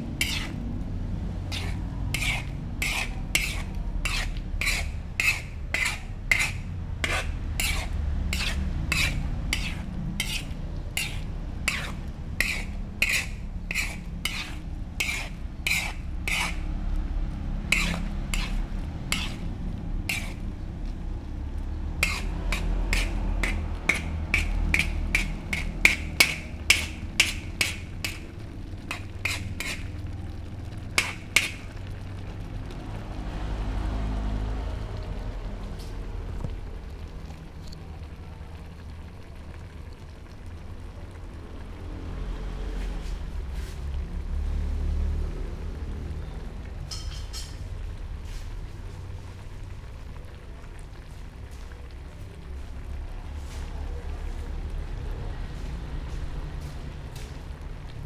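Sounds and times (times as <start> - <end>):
low steady rumble: 0.0 - 58.0
metal spoon scraping in wok: 0.1 - 0.7, 1.4 - 16.8, 17.4 - 21.0, 22.0 - 30.1, 31.0 - 31.8, 46.2 - 48.8.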